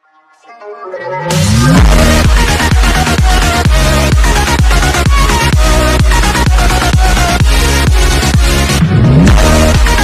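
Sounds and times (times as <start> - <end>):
synth melody: 0.0 - 10.0
kick drum beat: 1.8 - 8.6, 9.3 - 10.0.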